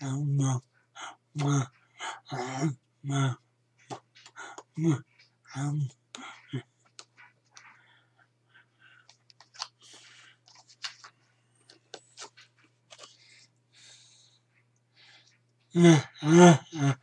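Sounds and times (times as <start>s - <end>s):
breaths: 4.2s - 4.8s, 7.6s - 11.8s, 13.0s - 15.4s
paper rustling: 9.0s - 13.4s.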